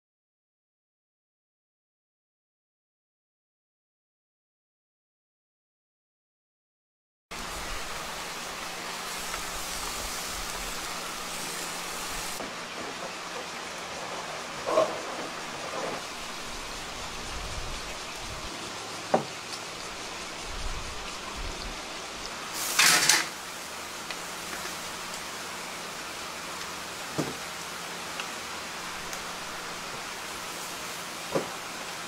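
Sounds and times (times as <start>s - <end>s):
sizzling hiss from charcoal grill: 7.3s - 32.0s.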